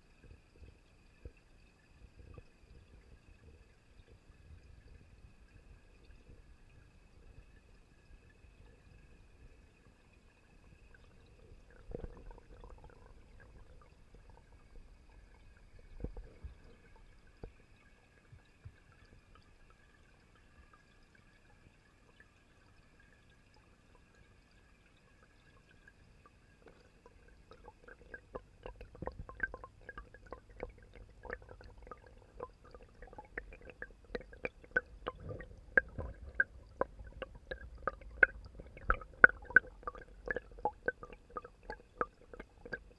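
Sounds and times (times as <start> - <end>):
faint high whine underwater: 0.0 - 42.9
sharp clicks and taps underwater: 10.7 - 19.4, 26.6 - 42.9
soft knocks underwater: 11.7 - 17.7, 27.5 - 42.8.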